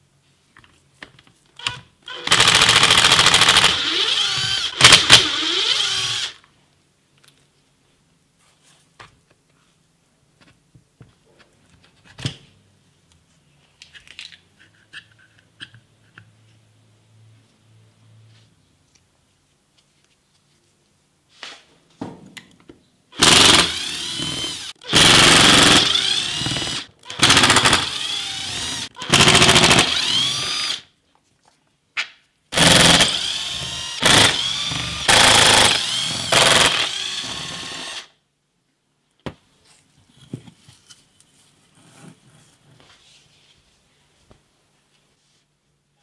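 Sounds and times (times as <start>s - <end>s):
power tool rattling bursts: 2.2s - 6.4s, 23.2s - 30.8s, 32.6s - 38.1s
clicks and handling of parts: 7.1s - 7.6s, 13.1s - 16.4s.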